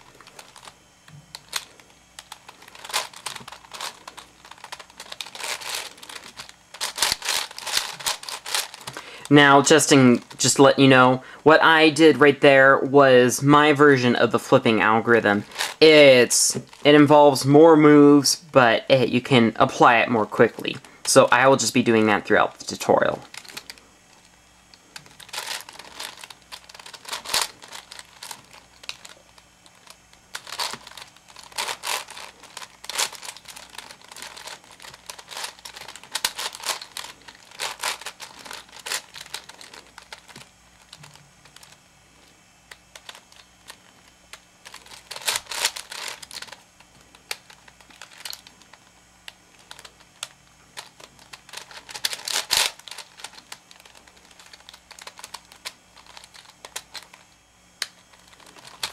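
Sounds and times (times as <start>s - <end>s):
puzzle cube clicking as turned: 0.1s - 9.0s, 15.5s - 15.9s, 25.0s - 41.8s, 42.7s - 57.2s.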